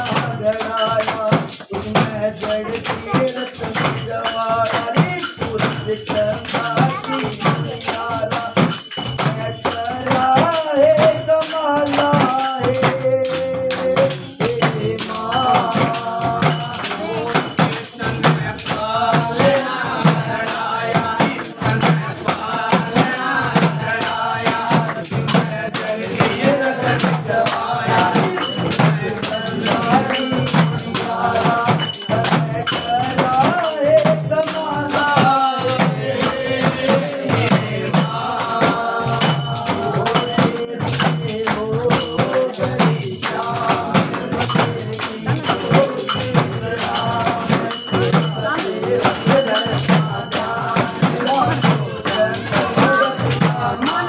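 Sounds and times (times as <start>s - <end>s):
group singing devotional song: 0.0s - 54.0s
jingling percussion: 0.0s - 54.0s
hand-clapping: 38.3s - 39.8s.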